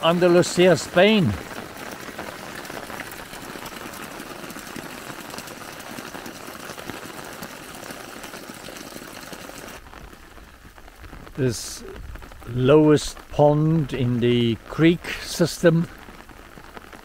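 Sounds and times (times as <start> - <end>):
water stream splashing into puddle: 0.0 - 10.3
rain pattering: 0.0 - 17.0.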